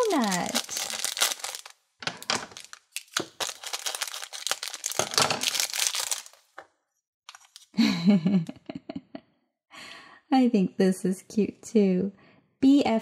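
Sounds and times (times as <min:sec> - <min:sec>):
plastic bag crinkling: 0:00.0 - 0:06.6.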